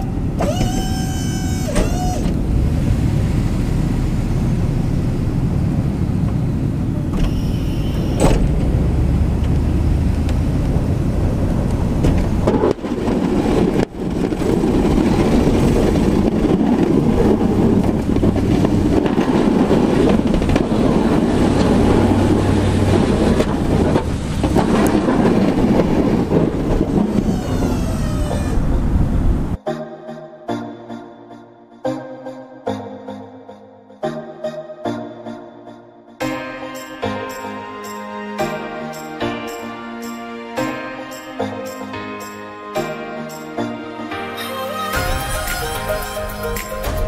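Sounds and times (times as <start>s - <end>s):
truck engine and road rumble: 0.0s - 29.6s.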